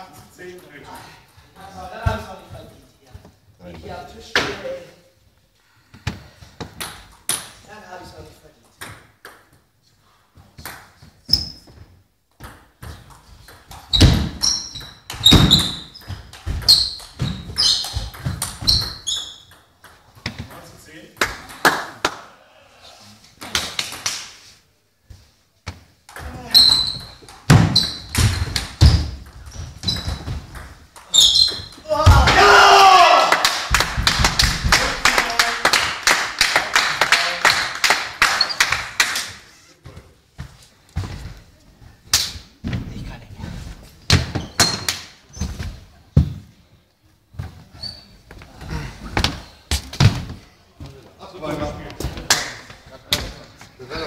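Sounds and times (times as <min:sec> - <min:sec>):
people clapping: 0:21.2 - 0:22.3, 0:33.0 - 0:39.6.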